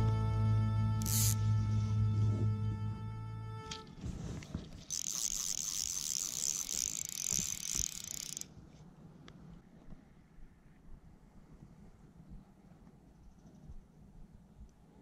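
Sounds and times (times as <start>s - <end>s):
fly reel ratchet buzzing: 1.0s - 1.4s, 4.8s - 8.5s.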